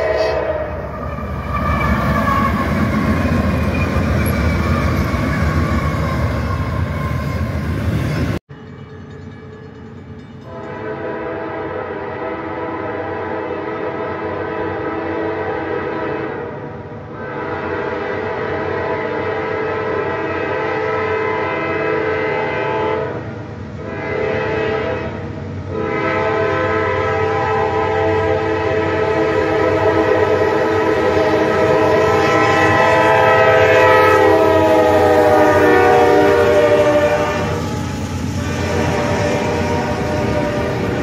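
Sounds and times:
locomotive air horn blasts: 0.0 - 1.6, 10.4 - 41.0
locomotive engine and wheel noise: 0.0 - 10.9, 23.1 - 41.0
train rumble: 0.0 - 41.0.

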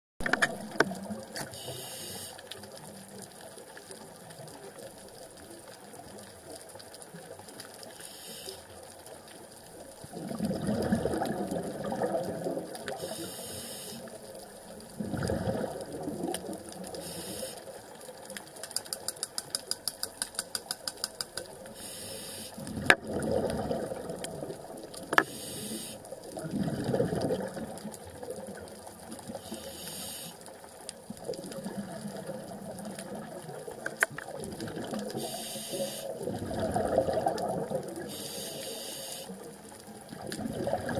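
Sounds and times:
exhaled bubbles rushing underwater: 0.2 - 1.4, 9.7 - 13.4, 14.0 - 18.1, 22.6 - 29.7, 30.7 - 40.9
hissing regulator inhalations: 1.4 - 2.4, 8.0 - 8.7, 13.0 - 14.1, 17.0 - 17.7, 21.8 - 22.6, 25.2 - 26.0, 29.4 - 30.4, 35.2 - 36.2, 38.1 - 39.4
fast even clicks: 18.6 - 21.5
sharp clicks: 18.6 - 21.6.

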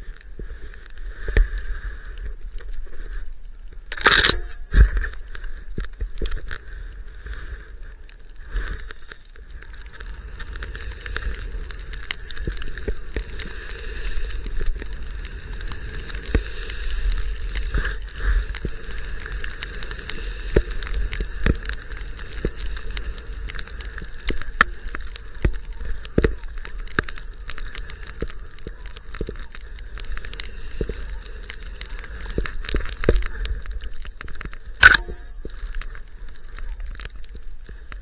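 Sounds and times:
skis hissing through powder: 6.7 - 32.6.

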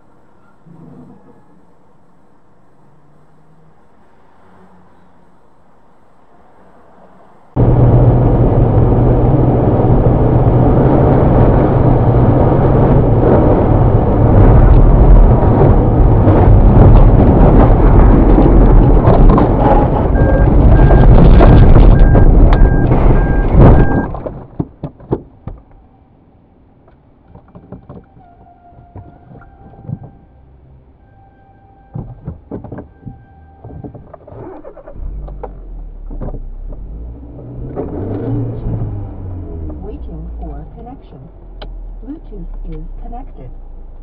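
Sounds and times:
engine hum: 0.0 - 44.0
rumbling rush of car sliding: 6.3 - 25.4, 32.0 - 40.6
repeating electronic beep: 20.1 - 21.2, 21.8 - 24.1
knocks: 31.9 - 34.2.

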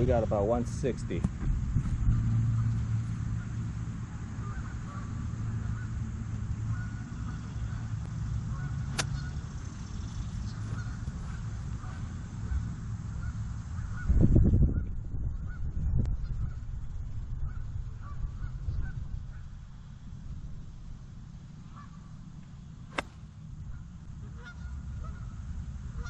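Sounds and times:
geese honking: 4.3 - 6.0, 6.6 - 9.4, 10.5 - 14.2, 21.7 - 22.1, 23.7 - 26.0
golf club striking ball: 8.8 - 9.3, 22.9 - 23.4.

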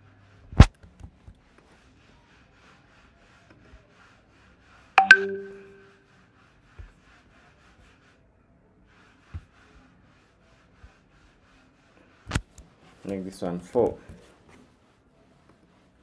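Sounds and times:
ringing ding: 5.0 - 5.9.

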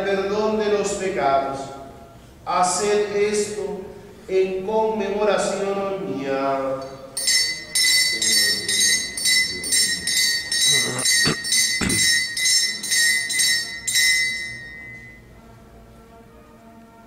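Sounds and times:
altar bells ringing: 6.8 - 15.3.

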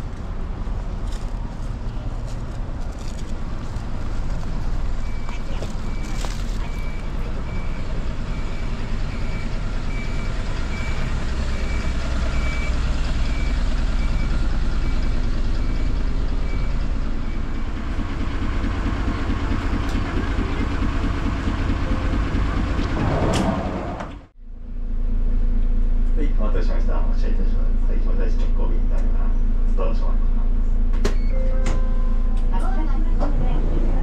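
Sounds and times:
bus engine rumbling: 0.0 - 34.0
short electronic beeps: 5.0 - 11.0, 31.2 - 32.3.

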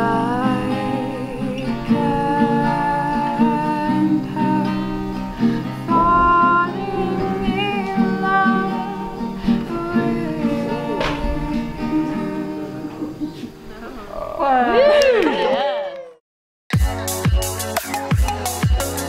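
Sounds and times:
person singing wavering notes: 0.0 - 13.4
acoustic guitar playing: 0.0 - 13.7, 16.7 - 19.0.

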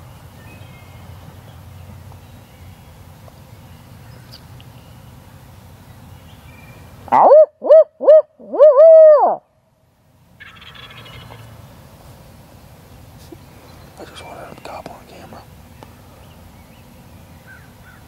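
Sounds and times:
owl hooting: 7.1 - 9.5, 10.4 - 11.5.

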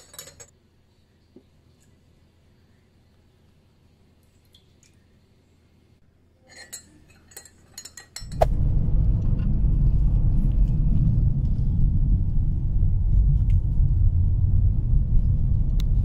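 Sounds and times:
metal spoon clinking in glass mug: 6.4 - 8.4
car cabin low rumble: 8.4 - 16.0.

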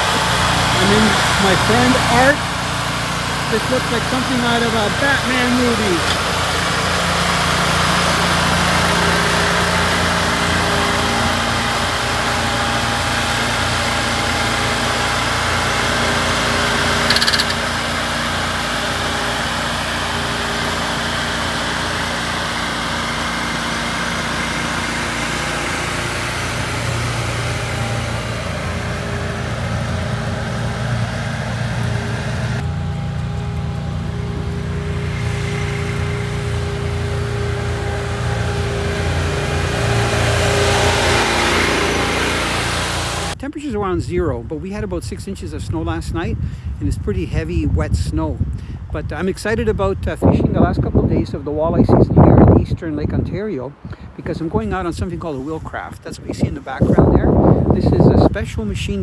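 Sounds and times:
engine idling: 0.0 - 43.4.

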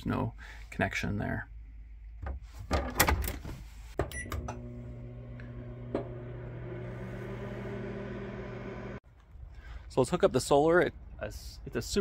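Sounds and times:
microwave oven humming: 4.0 - 9.0.

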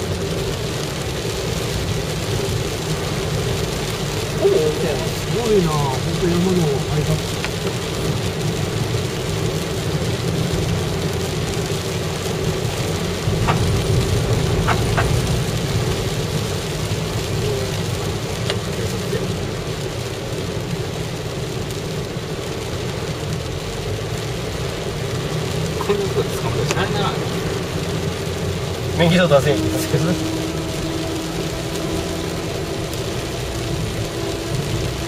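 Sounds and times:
car engine and road rumble: 0.0 - 35.0
rain: 0.0 - 35.0
tyres hissing on wet road: 0.0 - 35.0.

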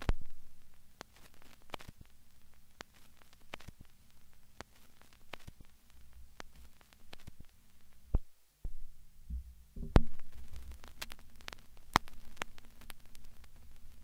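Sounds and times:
crackling static: 0.0 - 14.0
low hum: 8.6 - 10.9.

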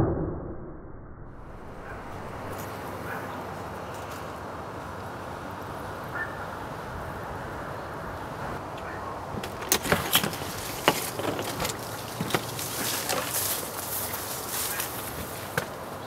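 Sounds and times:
background rumble: 0.0 - 3.3.

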